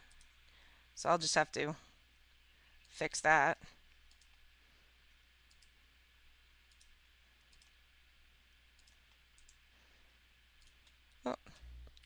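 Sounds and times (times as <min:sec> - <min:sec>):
computer mouse clicks: 0:00.0 - 0:00.4, 0:04.0 - 0:04.4, 0:05.4 - 0:05.8, 0:06.6 - 0:07.8, 0:08.7 - 0:09.6, 0:10.6 - 0:11.2
low steady hum: 0:00.0 - 0:12.0.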